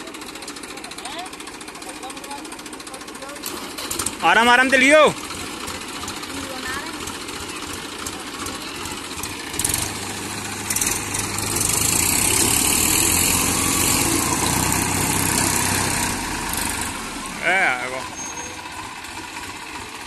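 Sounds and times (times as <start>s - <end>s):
diesel tractor engines running: 0.0s - 20.0s
wheel churning mud: 0.0s - 20.0s.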